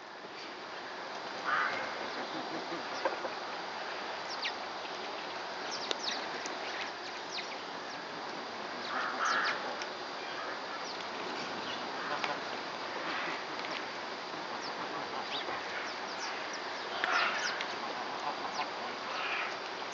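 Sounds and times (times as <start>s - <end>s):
steady background noise: 0.0s - 19.9s
lower bird call: 8.8s - 9.6s, 14.6s - 17.7s.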